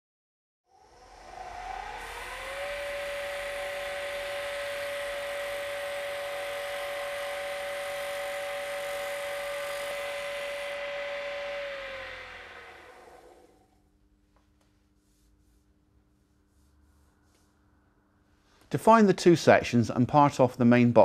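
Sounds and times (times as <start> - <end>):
lathe motor whine: 0.7 - 13.8
cutter hissing on wood: 1.7 - 13.7.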